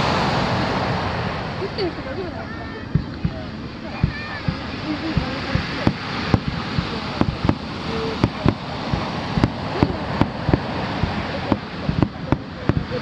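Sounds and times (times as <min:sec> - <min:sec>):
surf washing: 0:00.0 - 0:13.0
fireworks bangs: 0:02.9 - 0:13.0.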